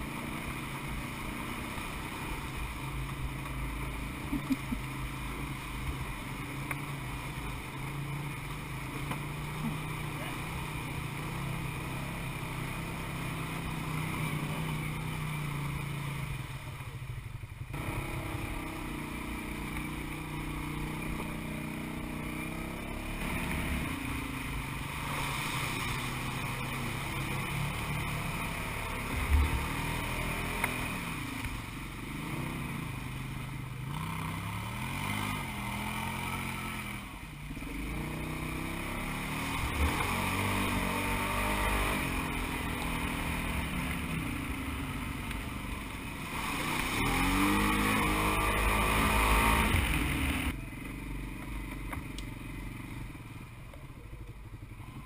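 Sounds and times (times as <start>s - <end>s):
utility vehicle engine running: 0.0s - 55.0s
water rushing: 22.6s - 33.1s.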